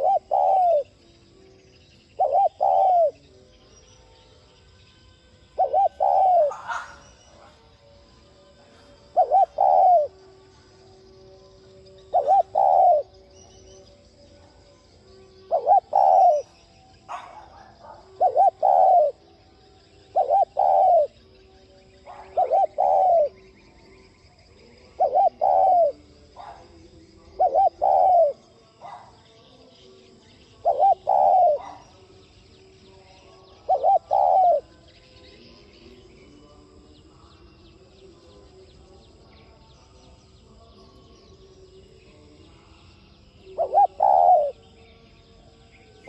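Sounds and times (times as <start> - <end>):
dove cooing: 0.0 - 1.0, 2.1 - 3.3, 5.5 - 7.7, 8.9 - 10.5, 12.0 - 13.6, 15.4 - 19.3, 20.1 - 21.3, 22.0 - 23.4, 24.8 - 29.1, 30.5 - 32.1, 33.3 - 34.7, 43.5 - 44.6.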